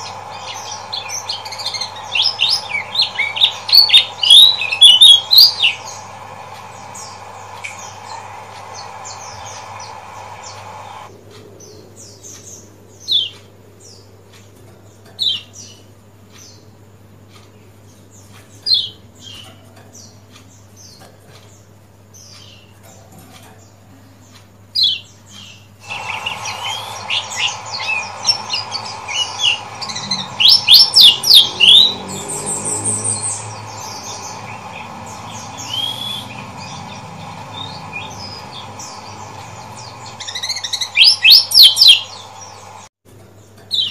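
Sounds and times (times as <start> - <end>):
bird giving sharp chirps: 0.0 - 11.1, 25.8 - 42.9
faint steady hum: 0.0 - 43.6.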